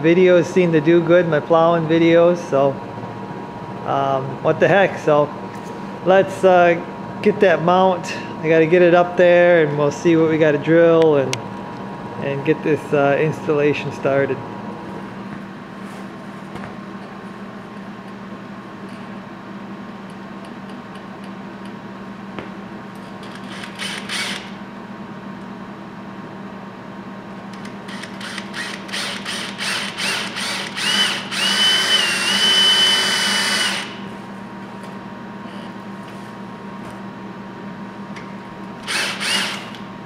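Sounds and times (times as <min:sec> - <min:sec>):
cordless drill boring a hole: 0:23.3 - 0:24.6, 0:27.9 - 0:34.0, 0:38.8 - 0:39.8.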